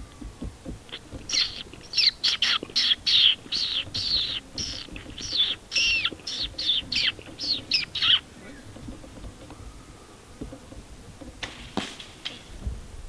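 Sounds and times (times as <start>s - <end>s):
fox whistle squealing notes: 1.3s - 8.2s.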